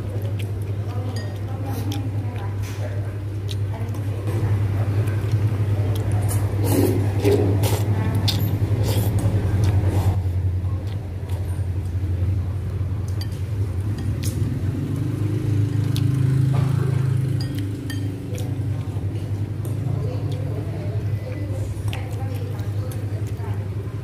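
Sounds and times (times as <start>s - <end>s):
spoon and chopsticks clinking bowl: 1.0s - 1.4s, 13.1s - 14.4s, 17.2s - 18.5s.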